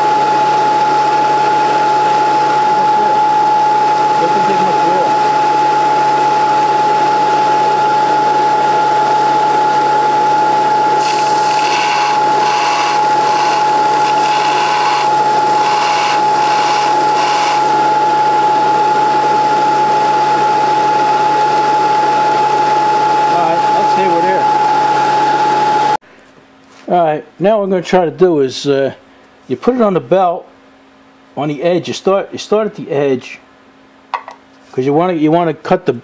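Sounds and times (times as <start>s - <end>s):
belt sander whining: 10.4s - 20.5s
drill bit grinding on belt: 11.0s - 18.1s.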